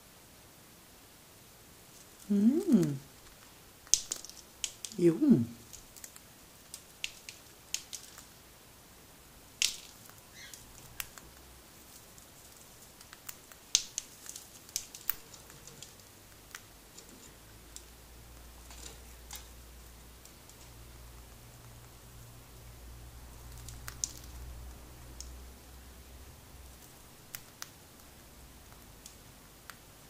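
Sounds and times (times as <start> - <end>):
bird beak cracking seeds: 2.0 - 5.0, 5.6 - 8.4, 9.5 - 22.2, 23.4 - 25.4, 26.7 - 29.8.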